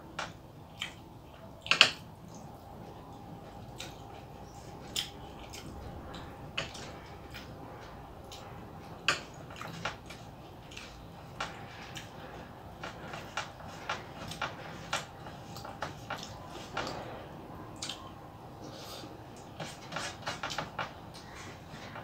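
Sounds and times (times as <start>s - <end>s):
fingers mixing food on metal plate: 0.2s - 22.0s.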